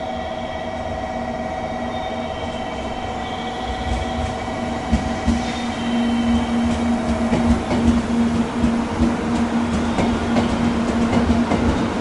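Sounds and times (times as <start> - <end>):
train electric drive whine: 0.0 - 12.0
train low rumble: 0.0 - 12.0
train wheels knocking: 4.2 - 12.0.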